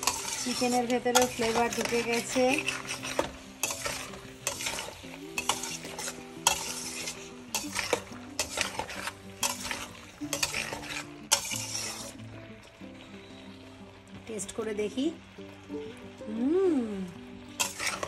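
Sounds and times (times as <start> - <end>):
spatula scraping a steel wok: 0.0 - 12.3, 17.6 - 18.0
low sizzle from pan: 0.0 - 18.0.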